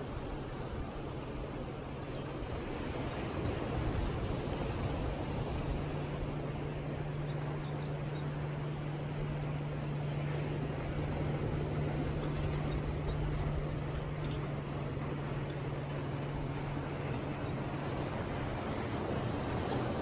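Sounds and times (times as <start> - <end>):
motorboat engine drone: 0.0 - 20.0
water noise: 0.0 - 20.0
wind: 0.0 - 20.0.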